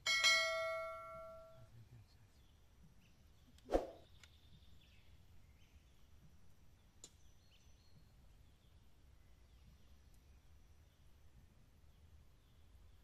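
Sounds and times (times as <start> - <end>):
faint bird chirps: 1.4 - 11.1.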